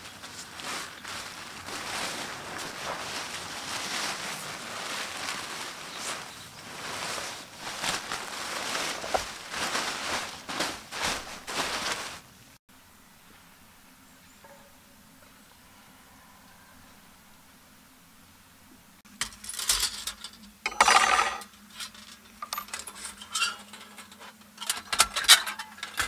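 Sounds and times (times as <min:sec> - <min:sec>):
nylon and plastic bags rustling: 0:00.0 - 0:12.3, 0:20.6 - 0:26.0
faint steady hiss: 0:00.0 - 0:26.0.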